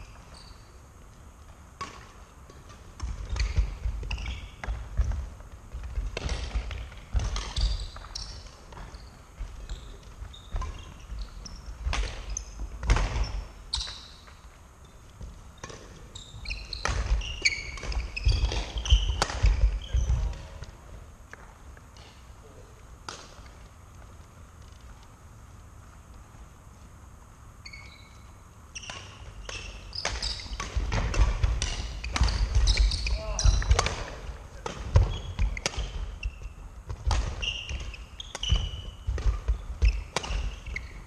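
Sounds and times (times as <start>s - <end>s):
shoe squeaks: 0.0s - 0.8s, 3.3s - 4.6s, 7.4s - 12.6s, 13.2s - 15.0s, 16.1s - 20.3s, 27.6s - 30.7s, 31.6s - 33.9s, 35.0s - 36.6s, 37.4s - 41.0s
racket striking shuttlecock: 16.8s - 19.7s, 28.9s - 36.0s, 36.9s - 40.6s.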